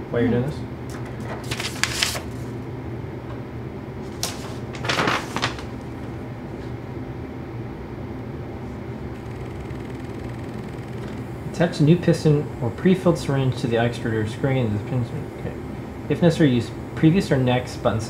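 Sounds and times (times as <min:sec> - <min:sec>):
steady low hum: 0:00.0 - 0:18.0
rustling and handling noises: 0:00.9 - 0:02.6, 0:04.0 - 0:05.8.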